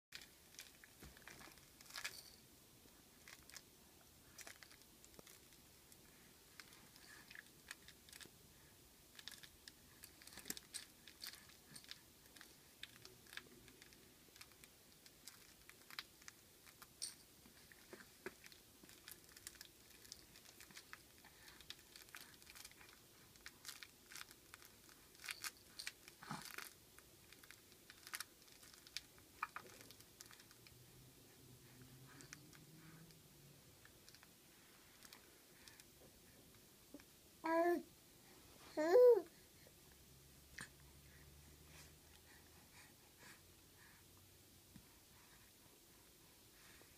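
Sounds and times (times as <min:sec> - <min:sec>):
fabric toy crinkling: 0:00.1 - 0:02.4, 0:04.2 - 0:08.3, 0:09.1 - 0:30.7.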